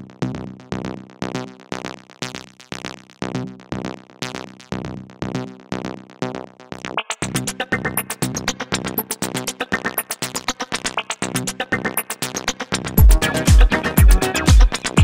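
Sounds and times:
electronic synthesizer music: 0:07.2 - 0:15.0.

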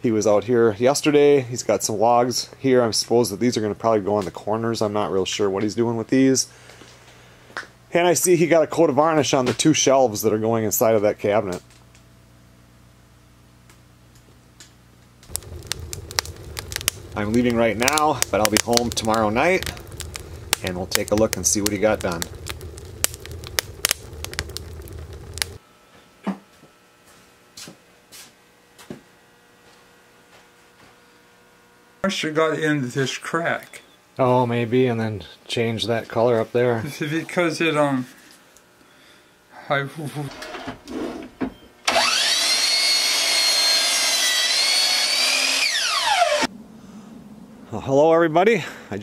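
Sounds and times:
low steady rumble: 0:12.0 - 0:25.6, 0:46.5 - 0:48.4
wood fire crackling and popping: 0:13.7 - 0:25.6
miter saw motor whine: 0:41.8 - 0:46.5.

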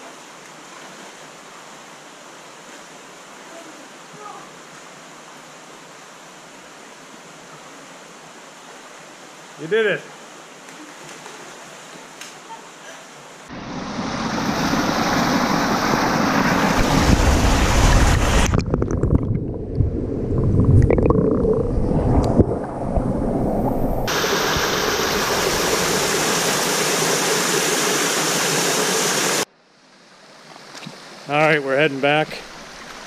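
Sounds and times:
stream rushing over rocks: 0:00.0 - 0:13.7, 0:23.5 - 0:29.5
low rumble: 0:13.5 - 0:24.1.

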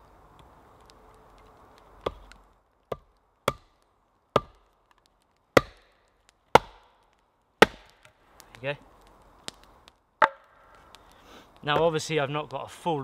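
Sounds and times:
axe chopping wood: 0:02.0 - 0:04.7, 0:05.5 - 0:08.2, 0:10.2 - 0:10.5.

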